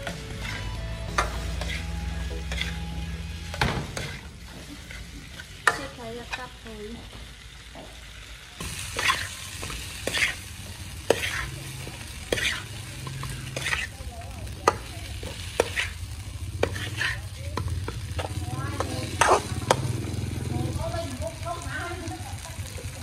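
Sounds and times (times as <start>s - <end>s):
metal ladle scraping a wok: 0.0s - 6.6s, 8.6s - 14.0s, 14.6s - 17.4s, 18.1s - 19.8s
light frying sizzle: 0.0s - 23.0s.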